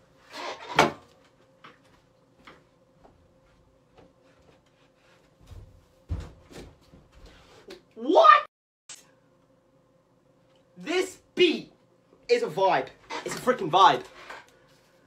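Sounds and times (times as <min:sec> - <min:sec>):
clicks and knocks in room: 0:00.8 - 0:07.9
faint steady hum: 0:09.0 - 0:15.0.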